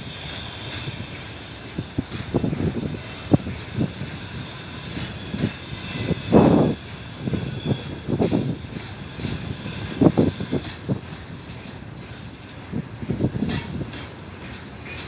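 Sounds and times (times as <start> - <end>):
freight train wheels knocking on rails: 0.0 - 15.0
steady hiss: 0.0 - 15.0.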